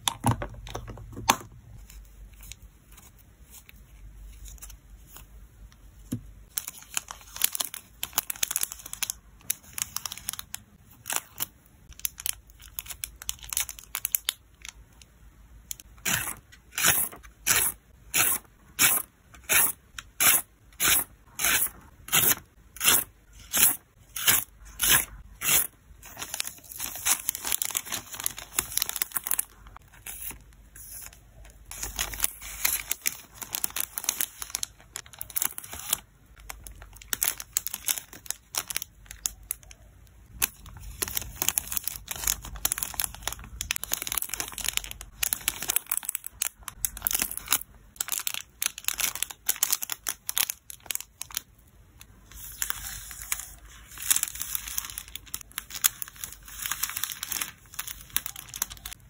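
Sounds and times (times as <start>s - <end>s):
plastic bags crinkling: 25.6s - 30.4s, 31.7s - 39.8s, 40.4s - 51.5s, 52.3s - 59.0s.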